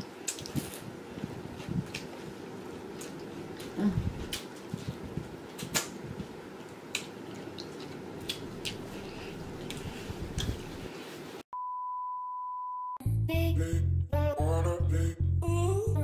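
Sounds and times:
chewing and lip smacks: 0:00.2 - 0:00.8, 0:06.6 - 0:08.9.

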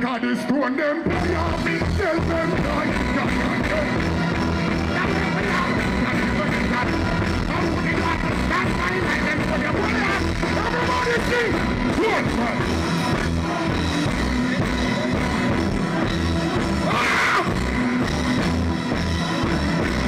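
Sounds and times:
live reggae band: 0:00.0 - 0:20.0
person singing into a microphone: 0:00.2 - 0:12.6.

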